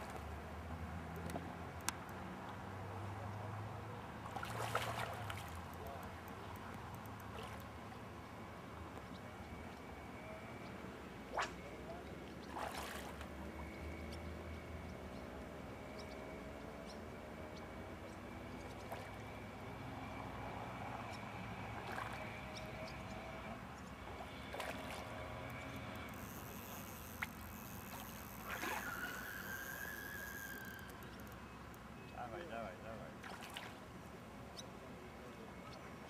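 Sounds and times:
fish splashing at water surface: 0:04.3 - 0:05.7, 0:24.2 - 0:30.6, 0:33.2 - 0:33.8.

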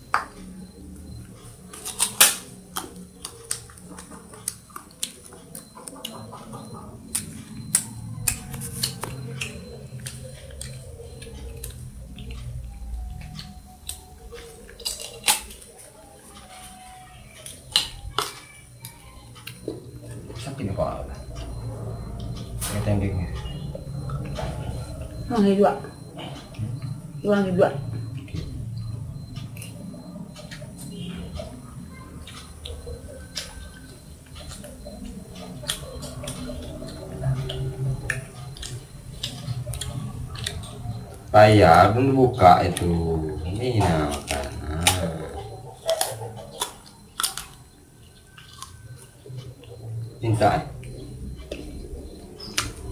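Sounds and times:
monkey chewing crunchy fruit: 0:01.7 - 0:21.4, 0:42.6 - 0:52.9
monkey chewing: 0:44.1 - 0:50.0.

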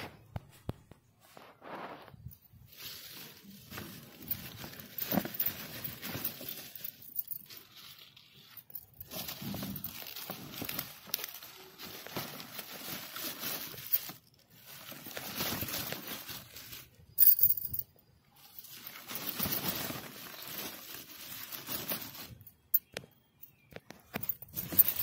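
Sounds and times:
leaves rustling: 0:01.2 - 0:17.8, 0:18.5 - 0:22.5
soil crumbling and scraping: 0:01.3 - 0:17.5.

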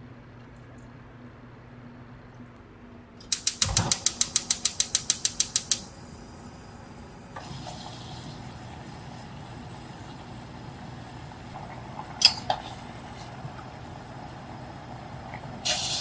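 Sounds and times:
stove igniter clicking: 0:03.2 - 0:05.9
gas burner hissing: 0:03.2 - 0:16.0.

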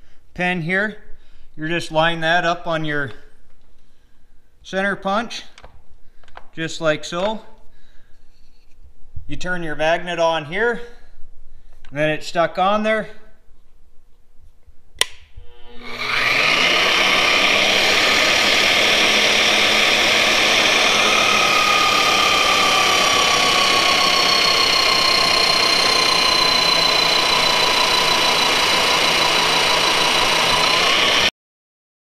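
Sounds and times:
magnetic drill whining through steel: 0:15.3 - 0:31.3.

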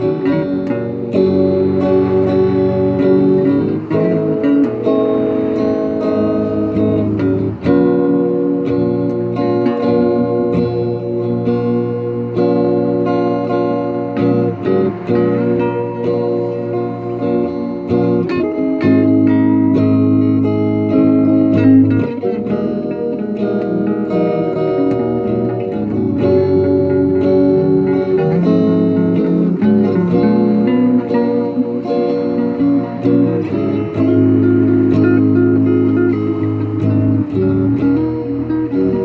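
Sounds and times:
electric guitars playing: 0:00.0 - 0:39.0.

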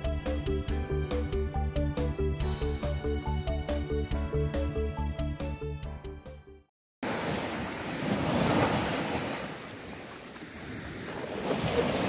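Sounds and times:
background music: 0:00.0 - 0:06.7
surf washing on shore: 0:07.0 - 0:12.0.

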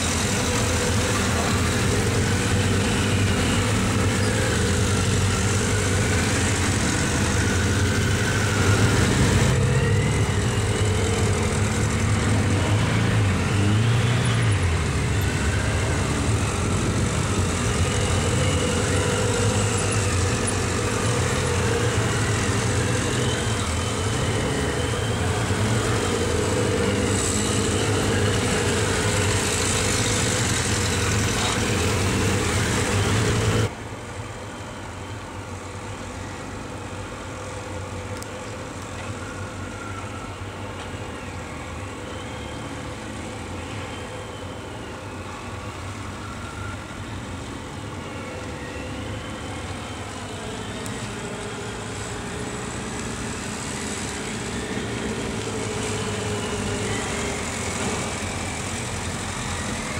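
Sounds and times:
motorcycle engines revving: 0:00.0 - 0:33.7, 0:36.7 - 0:59.9.

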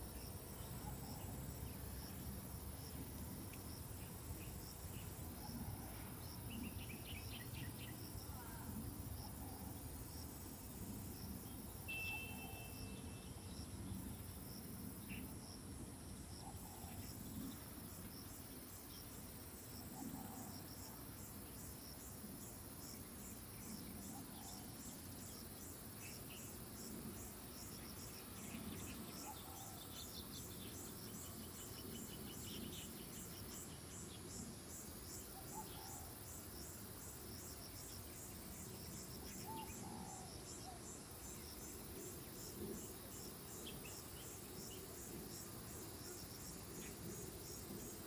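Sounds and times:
insects chirping: 0:00.0 - 0:48.0
faint bird calls: 0:11.9 - 0:13.4, 0:35.4 - 0:36.2, 0:39.3 - 0:41.0.

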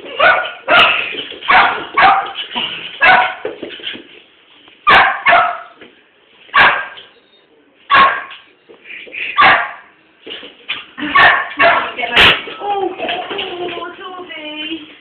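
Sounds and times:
small dog barking: 0:00.2 - 0:02.4, 0:03.0 - 0:03.4, 0:04.9 - 0:05.8, 0:06.6 - 0:07.0, 0:07.9 - 0:08.4, 0:09.4 - 0:09.9, 0:11.1 - 0:12.0.

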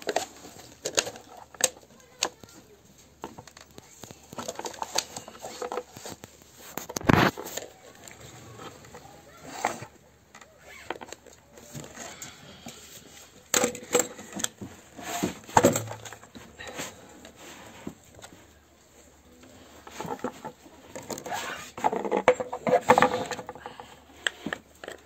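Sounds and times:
plastic bottle crinkling: 0:00.0 - 0:18.6.

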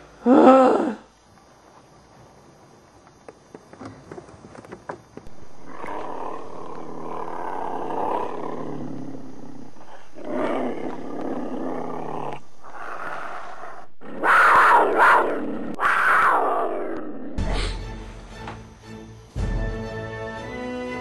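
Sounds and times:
monster growling and roaring: 0:05.3 - 0:17.5.

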